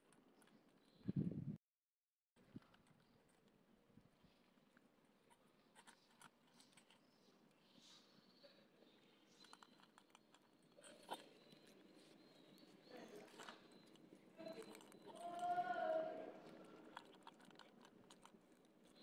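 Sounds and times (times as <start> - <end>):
cat chewing dry kibble: 4.6 - 7.6, 9.2 - 15.6, 16.2 - 19.0.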